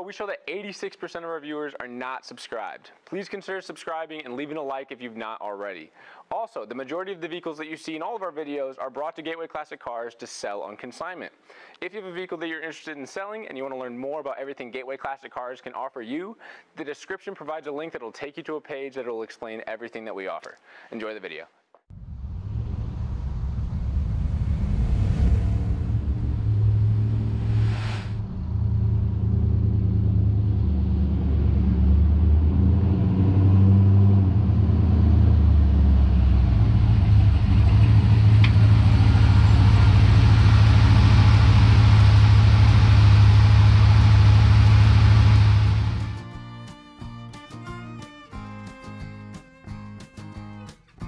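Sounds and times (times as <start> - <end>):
whooshes: 21.9 - 30.6
pickup engine running: 34.2 - 46.2.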